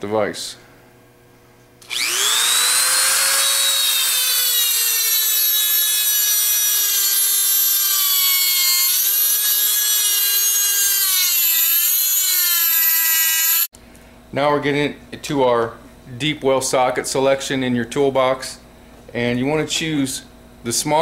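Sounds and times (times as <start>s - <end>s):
rotary tool grinding steel: 1.8s - 13.7s.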